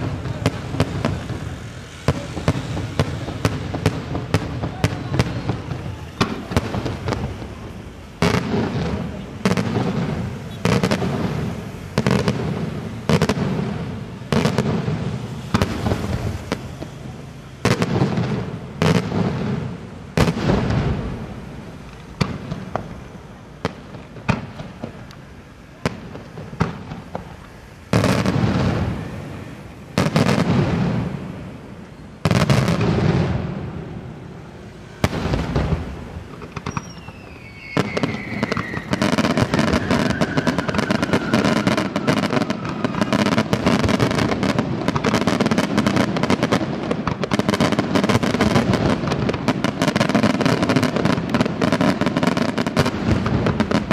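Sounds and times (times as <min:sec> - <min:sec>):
sharp firework cracks: 0:00.0 - 0:33.8, 0:34.9 - 0:53.9
firework shells bursting: 0:35.0 - 0:53.9.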